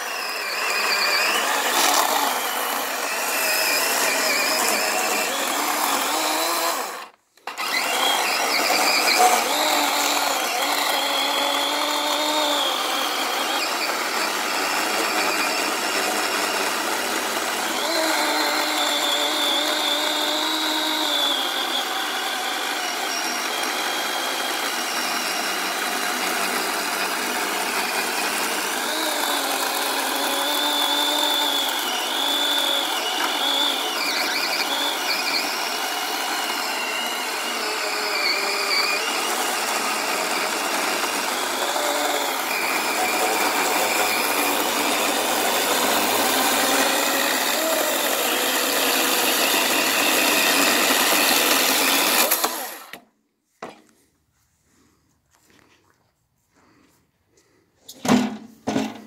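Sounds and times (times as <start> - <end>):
electric chainsaw cutting wood: 0.0 - 53.1.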